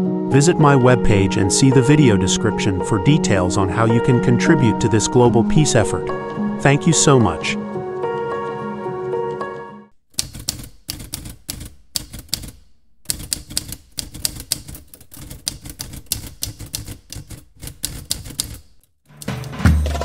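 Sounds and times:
soft music: 0:00.0 - 0:10.0, 0:19.1 - 0:20.0
typewriter keys clacking: 0:10.2 - 0:20.0.

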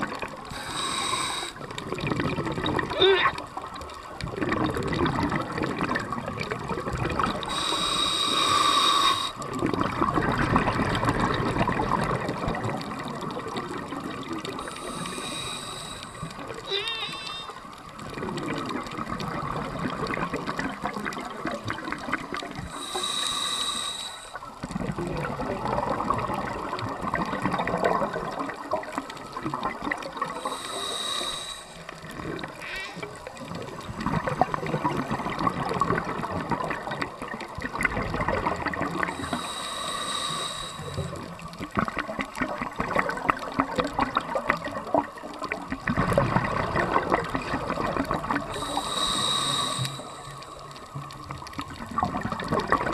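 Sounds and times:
exhaled air bubbling underwater: 0:00.0 - 0:52.9
regulator hiss on inhale: 0:00.5 - 0:01.8, 0:07.4 - 0:09.5, 0:14.5 - 0:17.8, 0:22.6 - 0:24.7, 0:30.3 - 0:33.1, 0:39.0 - 0:41.5, 0:48.4 - 0:51.4.

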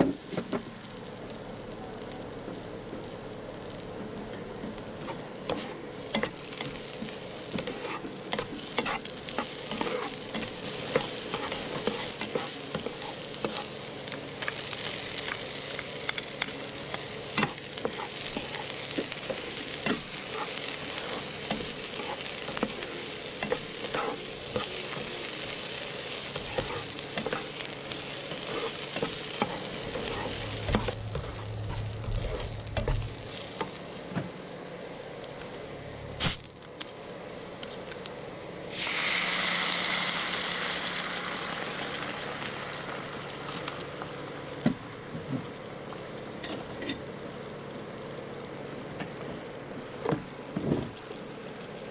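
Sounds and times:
food sizzling in oil: 0:00.2 - 0:36.4, 0:38.6 - 0:45.0
spatula stirring and scraping: 0:05.0 - 0:13.8, 0:14.4 - 0:33.7
low rumble: 0:29.9 - 0:33.3.

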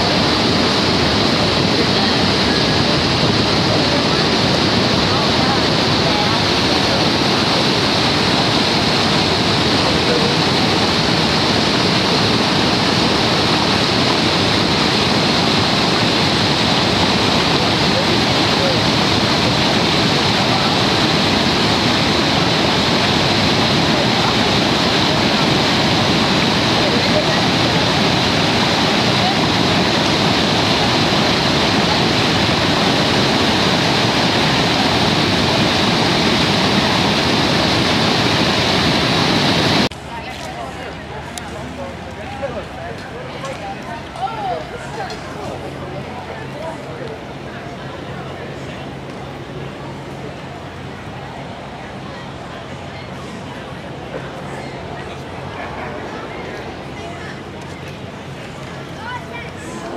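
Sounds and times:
white water rushing over rocks: 0:00.0 - 0:39.9.

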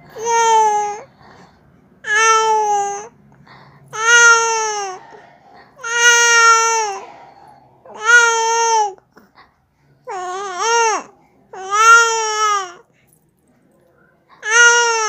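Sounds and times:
baby vocalizing: 0:03.9 - 0:09.4.

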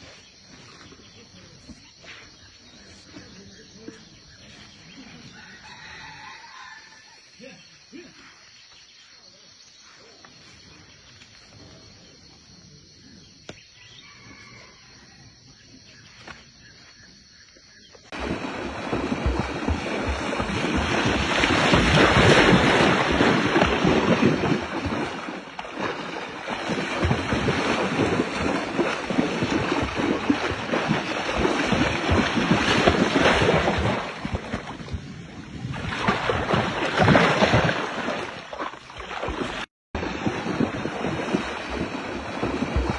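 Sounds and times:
splashing and churning water: 0:18.1 - 0:42.9.

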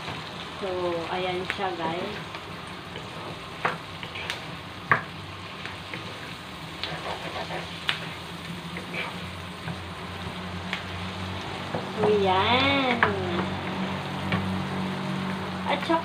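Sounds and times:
meat sizzling in a frying pan: 0:00.0 - 0:16.0
spatula scraping pan: 0:05.6 - 0:09.8.

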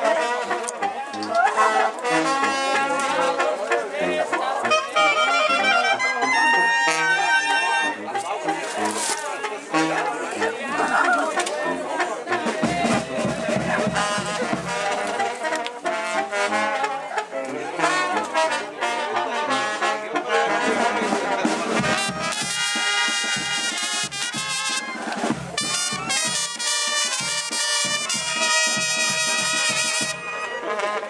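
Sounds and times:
brass band playing: 0:00.0 - 0:31.0.

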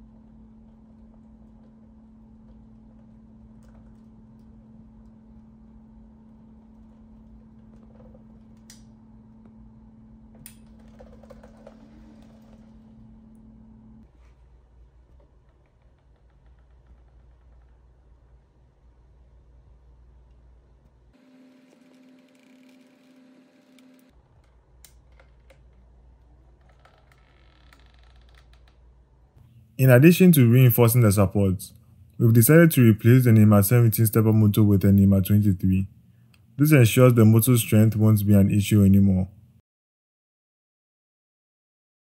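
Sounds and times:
low electrical hum: 0:00.0 - 0:39.6
stepper motor whine: 0:21.2 - 0:24.1.

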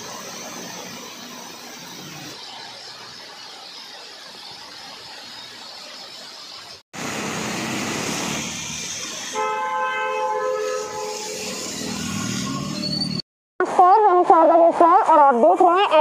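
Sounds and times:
traffic splashing through flood water: 0:02.4 - 0:13.0
vehicle horn: 0:09.3 - 0:11.8.

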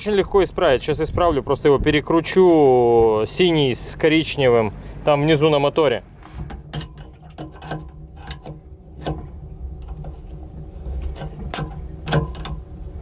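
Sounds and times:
low hum: 0:00.0 - 0:13.0
wrench clicking on metal nuts: 0:06.5 - 0:10.2, 0:11.1 - 0:12.7.

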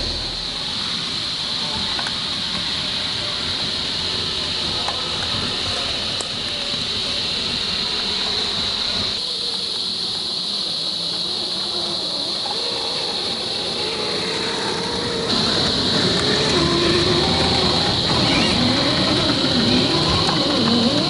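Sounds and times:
electric motor and gears whining: 0:00.0 - 0:21.0
high-pitched insect chorus: 0:00.0 - 0:21.0.

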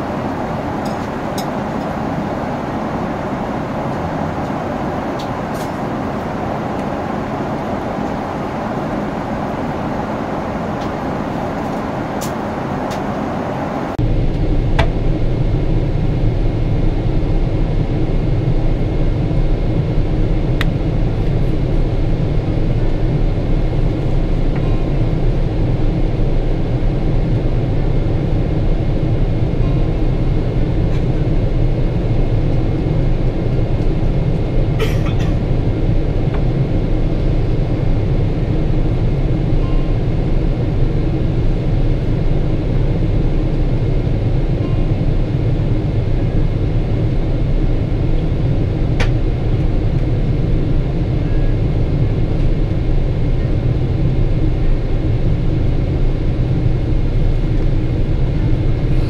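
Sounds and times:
airplane cabin noise: 0:00.0 - 0:59.0.

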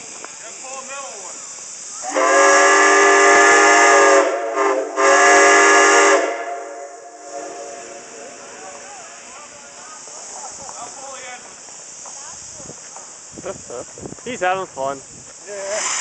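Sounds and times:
steady steam hiss: 0:00.0 - 0:16.0
steam whistle blast: 0:02.0 - 0:08.1.

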